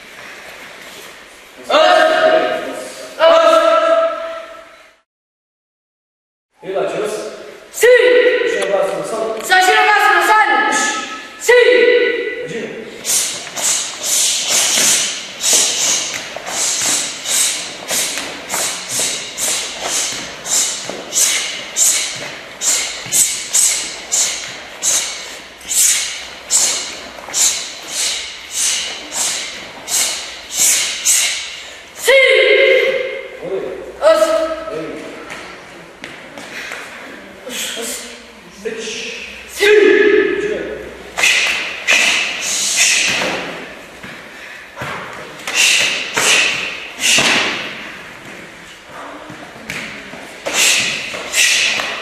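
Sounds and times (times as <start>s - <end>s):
uniform snapping swishes: 13.0s - 31.7s, 41.1s - 52.0s
slaps and thuds of kicks: 44.8s - 47.8s.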